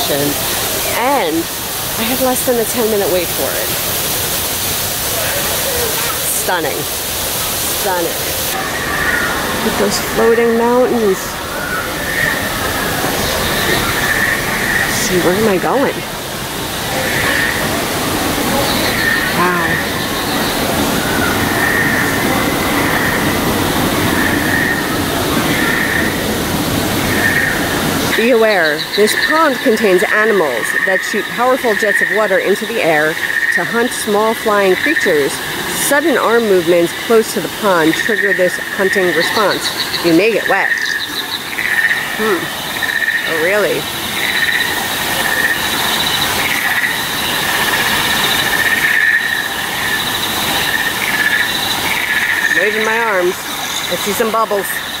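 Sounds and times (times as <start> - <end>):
steady rushing noise: 0.0 - 28.7
small waterfalls pouring into pond: 0.0 - 55.0
pulsing insect chirring: 24.0 - 55.0.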